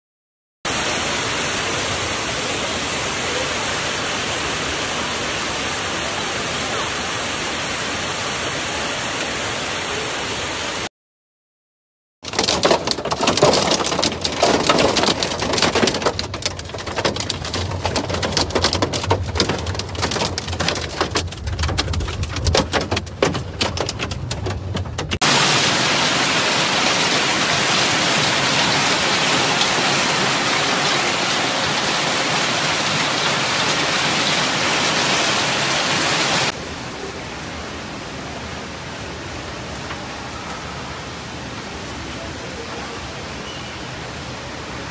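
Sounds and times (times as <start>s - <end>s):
hailstones drumming on car roof: 12.2s - 36.5s
heavy hail and rain rushing: 12.2s - 43.3s.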